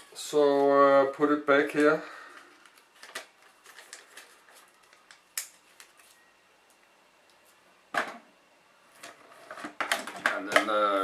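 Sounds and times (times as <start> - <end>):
paper rustling: 2.9 - 6.2.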